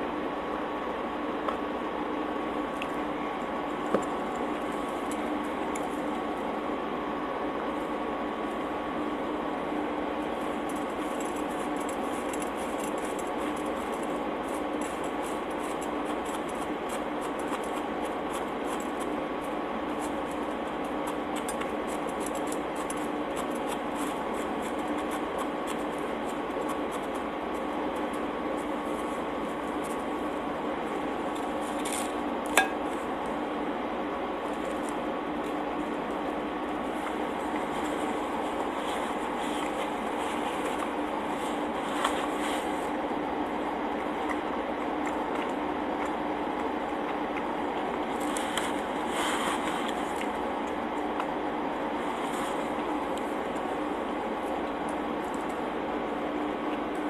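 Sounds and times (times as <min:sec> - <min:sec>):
steady background hum: 0:00.0 - 0:57.0
faint clicks of food handling: 0:10.5 - 0:17.8.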